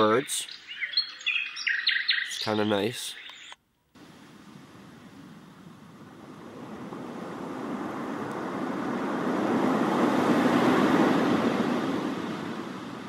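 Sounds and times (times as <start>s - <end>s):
ocean wave surf through speaker: 4.0s - 13.0s.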